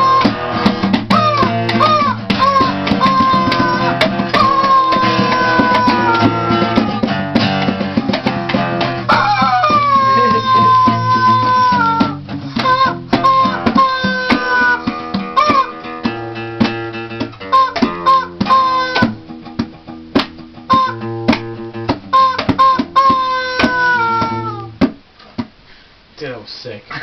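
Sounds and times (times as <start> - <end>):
rubber chicken squawks: 0.0 - 7.7, 8.7 - 19.2, 20.7 - 24.8
acoustic guitar strumming: 0.0 - 25.6
sharp percussive hits: 0.0 - 25.6.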